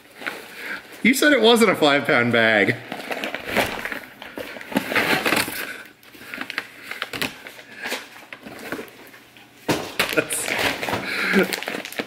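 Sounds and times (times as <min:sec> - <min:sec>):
plastic bag crinkling: 0:02.4 - 0:09.1, 0:10.0 - 0:12.0.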